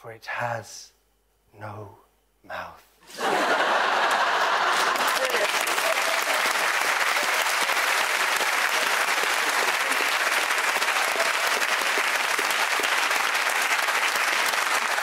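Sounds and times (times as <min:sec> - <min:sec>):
audience applauding: 0:03.3 - 0:15.0.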